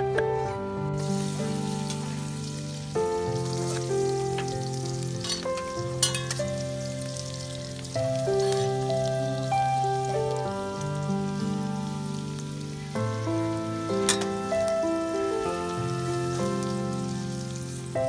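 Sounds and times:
background music sustained notes: 0:00.0 - 0:18.0
food sizzling in hot oil: 0:00.9 - 0:18.0
metal spatula scraping pan: 0:05.2 - 0:06.4, 0:14.1 - 0:14.4.

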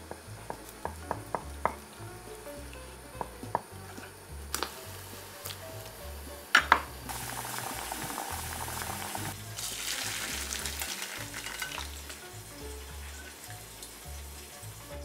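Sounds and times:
soft background music: 0:00.0 - 0:15.0
hot water hissing: 0:01.4 - 0:15.0
water pouring through strainer: 0:07.1 - 0:12.3.

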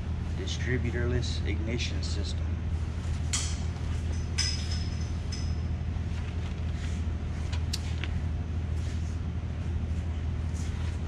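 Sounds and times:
low mechanical hum: 0:00.0 - 0:11.0
sharp metallic clink: 0:03.3 - 0:05.7.

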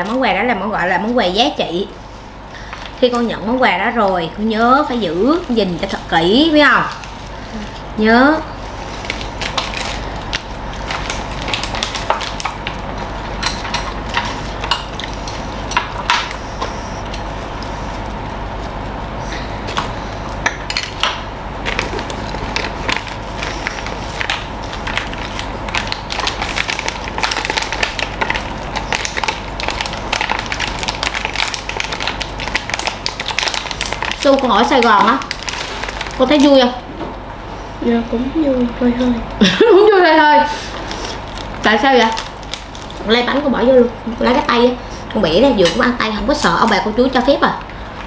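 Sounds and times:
rice paper crackling: 0:00.0 - 0:36.8, 0:39.7 - 0:48.0
steady low hum: 0:00.0 - 0:48.0
crispy food being chewed: 0:08.8 - 0:18.9, 0:21.6 - 0:36.6, 0:40.7 - 0:43.1.

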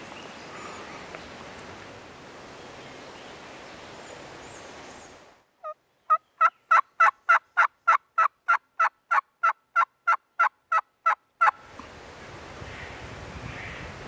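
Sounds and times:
turkey yelps: 0:06.4 - 0:09.2.

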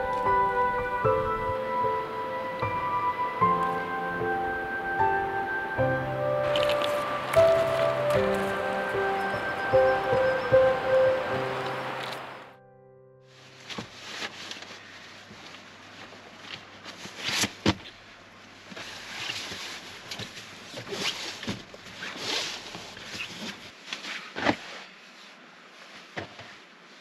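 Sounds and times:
rustling and handling noises: 0:06.4 - 0:08.9, 0:13.3 - 0:27.0.

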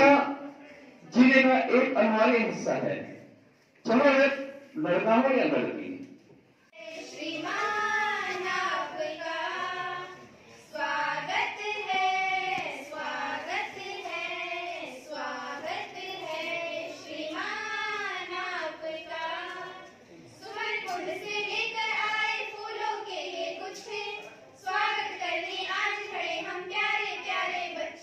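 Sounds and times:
girls singing together: 0:06.7 - 0:28.0.

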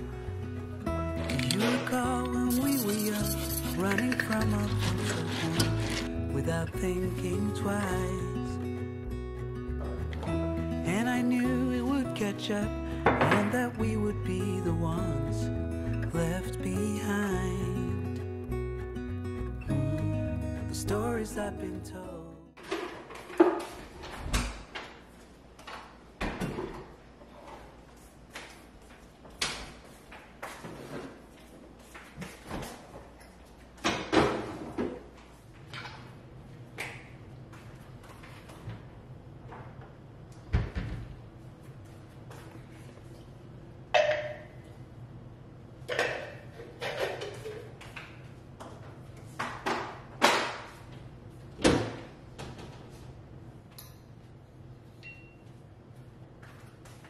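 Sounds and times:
pantry door opening and shutting: 0:01.2 - 0:02.8
kitchen items knocking and clicking: 0:43.9 - 0:44.5, 0:45.9 - 0:48.1.

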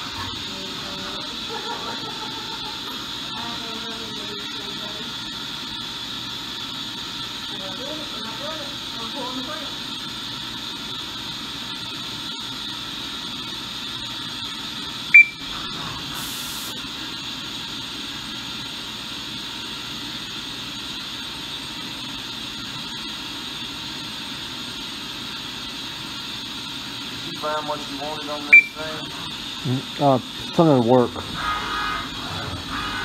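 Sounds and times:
cnc mill running with high tone: 0:00.0 - 0:33.0
short loud high beep: 0:15.2 - 0:15.4, 0:28.5 - 0:28.8.

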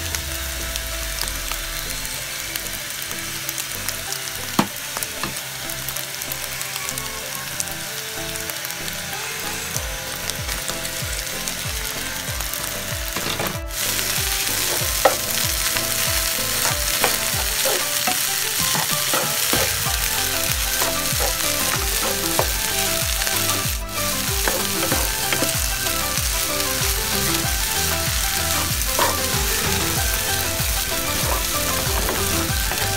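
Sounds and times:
food sizzling in a frying pan: 0:00.0 - 0:32.9
spatula scraping a pan: 0:13.2 - 0:32.9.

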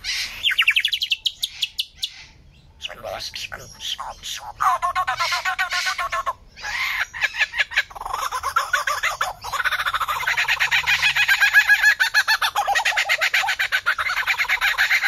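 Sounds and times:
lyrebird singing: 0:00.0 - 0:15.0.

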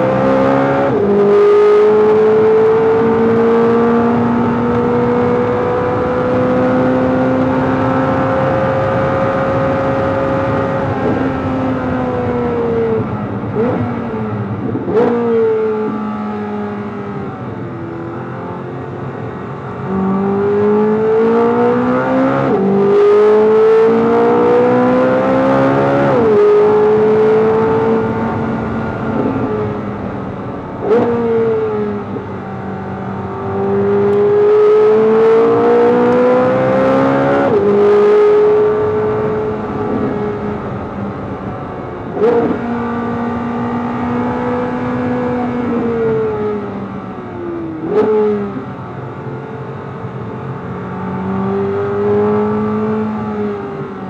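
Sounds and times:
sports car engine revving hard: 0:00.0 - 0:54.0.

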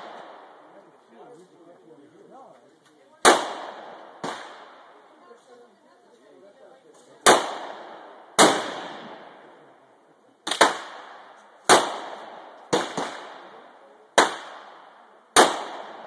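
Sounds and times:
rifle shots with long echo: 0:00.0 - 0:00.9, 0:03.2 - 0:05.1, 0:07.2 - 0:16.0.

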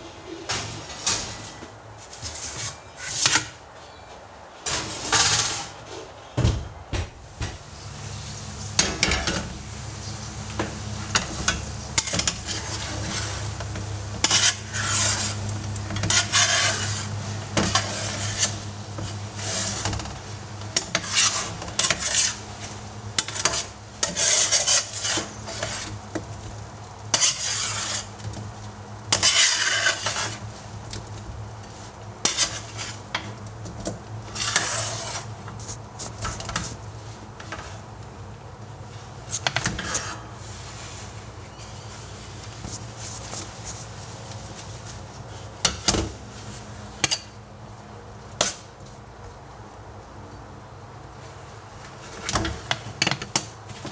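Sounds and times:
potatoes sizzling: 0:07.6 - 0:31.0
metal spatula scraping pan: 0:11.1 - 0:13.6, 0:14.2 - 0:20.0, 0:20.8 - 0:22.4, 0:23.2 - 0:26.0, 0:27.1 - 0:28.2, 0:29.1 - 0:30.5, 0:32.2 - 0:33.1, 0:34.3 - 0:35.3, 0:39.5 - 0:40.3.

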